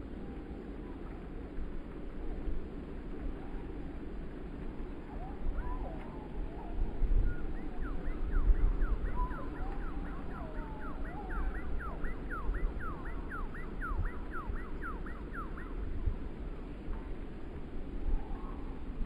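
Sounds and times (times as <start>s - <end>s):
wind gusting on microphone: 0.0s - 19.0s
distant siren wailing and yelping: 5.0s - 16.0s.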